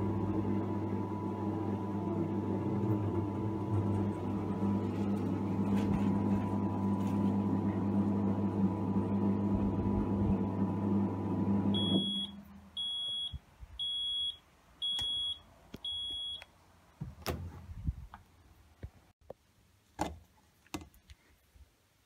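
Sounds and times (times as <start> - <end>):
washing machine spinning: 0.0 - 14.3.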